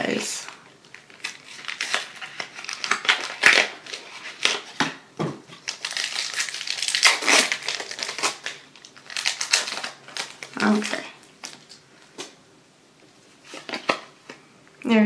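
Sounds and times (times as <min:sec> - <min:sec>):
foil wrapper crinkling: 0:00.4 - 0:04.8, 0:05.6 - 0:11.8.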